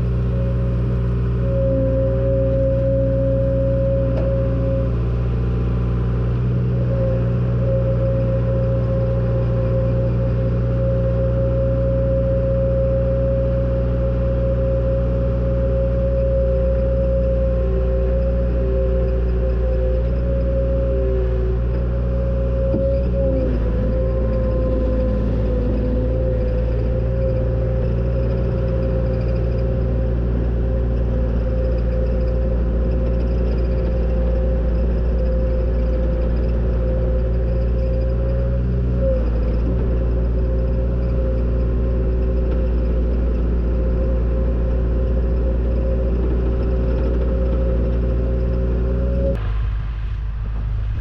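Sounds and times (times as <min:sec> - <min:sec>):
diesel engine running: 0:00.0 - 0:51.0
high whine: 0:00.0 - 0:51.0.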